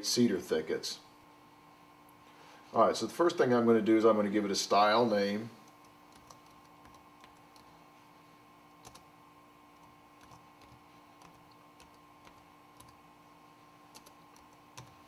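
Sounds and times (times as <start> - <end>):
faint steady hum: 0.0 - 15.0
slow keyboard keystrokes: 5.7 - 7.7, 8.7 - 9.1, 9.8 - 13.0, 13.9 - 15.0.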